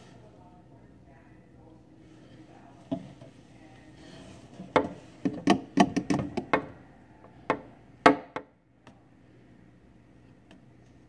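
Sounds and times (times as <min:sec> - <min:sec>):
plastic tube knocking: 0:04.6 - 0:06.8.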